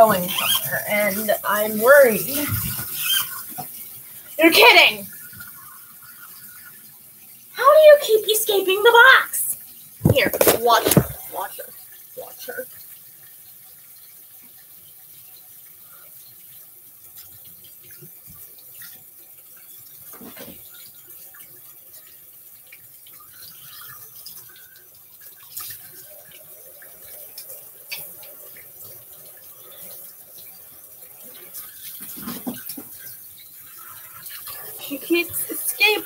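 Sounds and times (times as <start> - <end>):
tap running into sink: 10.0 - 11.3.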